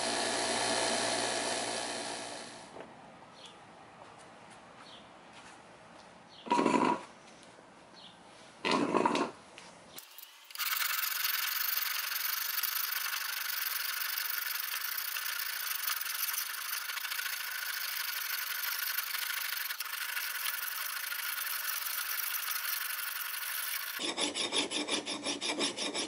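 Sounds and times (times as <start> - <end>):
file rasping on axe steel: 14.6 - 26.0.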